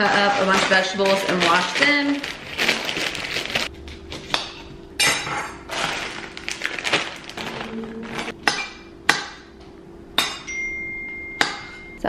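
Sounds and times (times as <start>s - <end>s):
handling and scraping noise: 0.0s - 4.4s, 5.2s - 8.4s.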